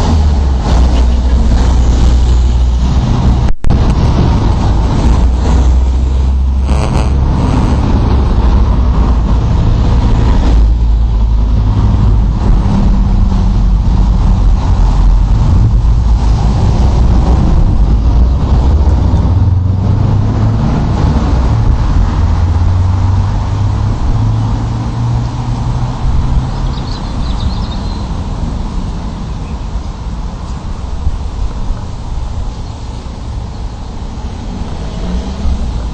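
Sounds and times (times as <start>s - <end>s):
deep engine drone: 0.0s - 27.8s.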